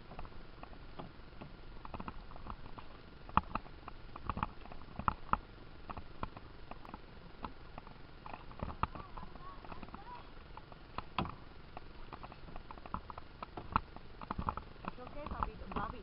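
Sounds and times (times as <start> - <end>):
paddle knocking against canoe: 10.7 - 16.0.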